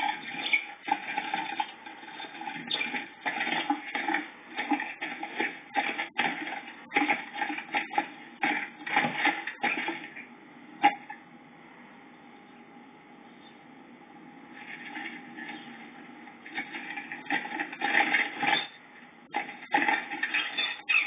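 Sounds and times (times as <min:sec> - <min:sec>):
wings flapping: 0:16.5 - 0:21.0.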